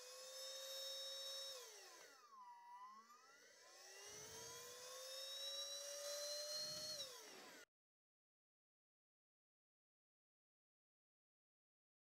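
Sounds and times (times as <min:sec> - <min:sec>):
handheld vacuum motor whining: 0:00.0 - 0:07.7.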